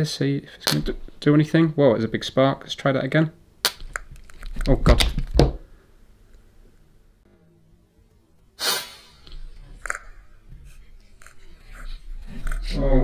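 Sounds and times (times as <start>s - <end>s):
electrical arc hissing burst: 8.6s - 9.3s.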